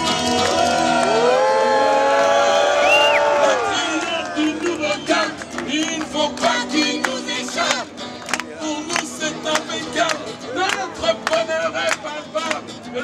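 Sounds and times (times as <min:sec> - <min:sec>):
several voices singing together: 0:03.3 - 0:07.9.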